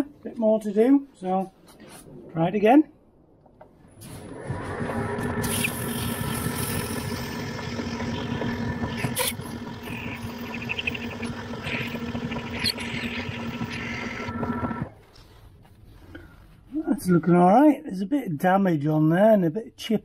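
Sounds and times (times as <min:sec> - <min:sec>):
metal lathe motor hum: 0:04.2 - 0:14.9.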